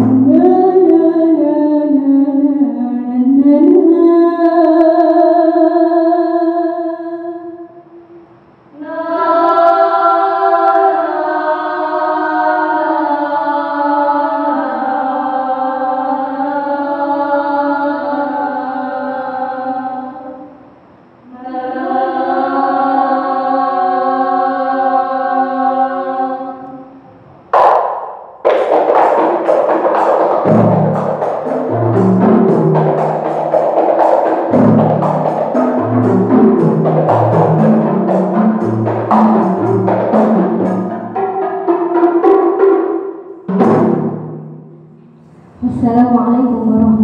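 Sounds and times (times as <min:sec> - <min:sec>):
women singing unaccompanied: 0:00.0 - 0:07.7, 0:08.8 - 0:20.4
frame drums fast rhythm: 0:27.6 - 0:44.9.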